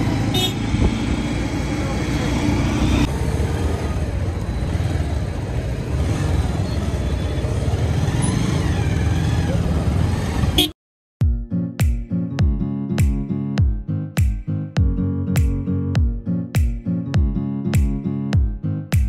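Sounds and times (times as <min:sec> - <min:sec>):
motorcycle engine rumbling: 0:00.0 - 0:10.7.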